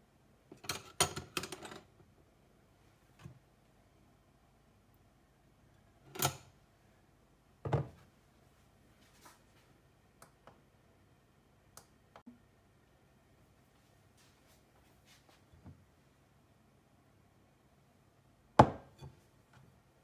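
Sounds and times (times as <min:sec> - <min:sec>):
glass bowl knocking on worktop: 0:18.6 - 0:19.0.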